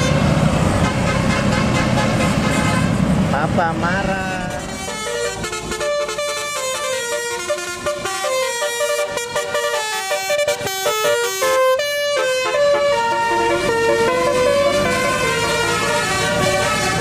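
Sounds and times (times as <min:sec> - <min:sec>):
musical bus horn playing a tune: 0:00.0 - 0:03.1, 0:04.2 - 0:17.0.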